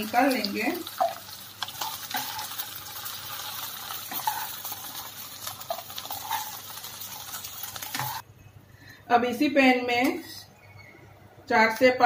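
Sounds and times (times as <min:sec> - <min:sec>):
okra sizzling in a pan: 0:00.0 - 0:08.3
spatula knocking and scraping: 0:07.8 - 0:08.2.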